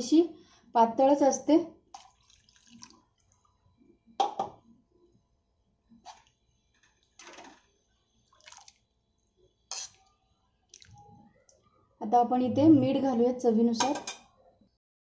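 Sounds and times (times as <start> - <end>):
liquid sloshing: 1.9 - 3.6, 8.3 - 8.8
metal ladle scraping a pot: 9.7 - 10.0.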